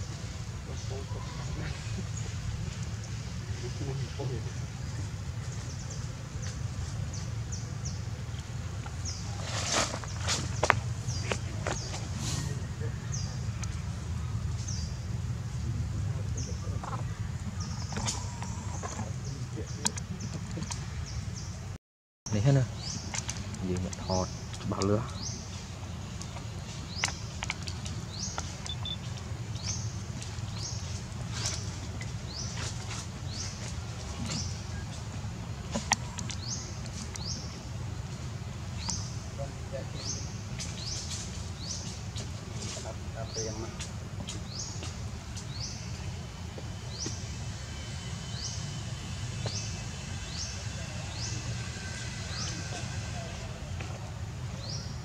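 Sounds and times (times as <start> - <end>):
low steady rumble: 0.0 - 55.0
animal chirping: 28.6 - 29.0.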